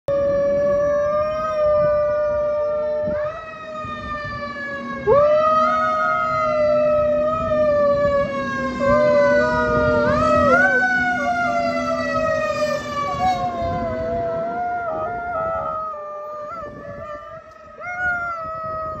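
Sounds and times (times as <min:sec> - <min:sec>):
fire truck siren wailing: 0:00.1 - 0:19.0
dog howling: 0:08.8 - 0:11.6, 0:13.0 - 0:19.0.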